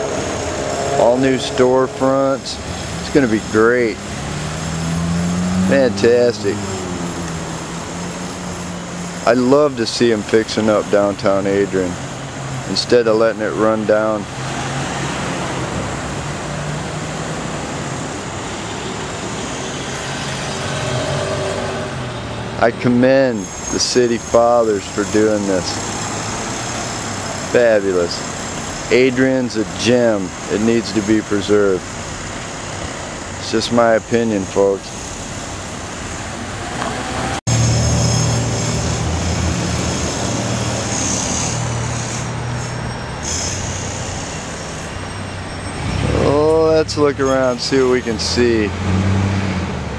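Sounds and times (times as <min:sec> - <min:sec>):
low engine drone: 0:00.0 - 0:09.5, 0:17.5 - 0:29.1
cars driving past: 0:00.0 - 0:49.9
street noise: 0:00.0 - 0:49.9.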